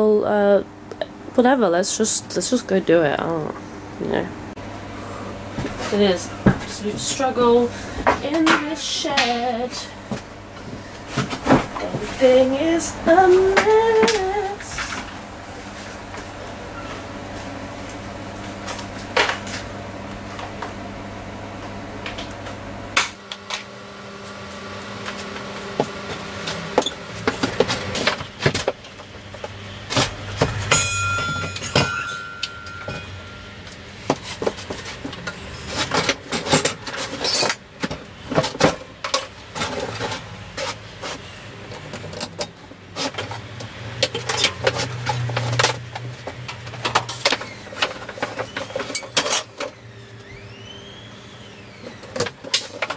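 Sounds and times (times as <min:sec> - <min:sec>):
steady low hum: 0:00.0 - 0:52.9
metal tools clanking: 0:30.4 - 0:33.8, 0:46.7 - 0:49.7.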